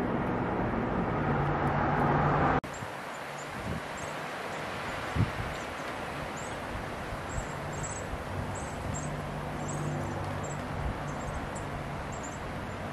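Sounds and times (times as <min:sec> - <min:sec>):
small birds chirping: 0:02.6 - 0:12.9.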